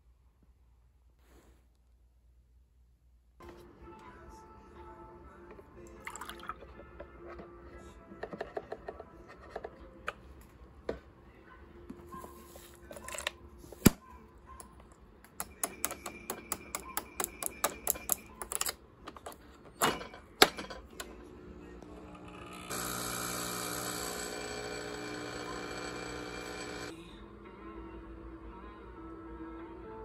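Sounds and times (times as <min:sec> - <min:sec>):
small machine buzzing hum: 0:21.3 - 0:27.0.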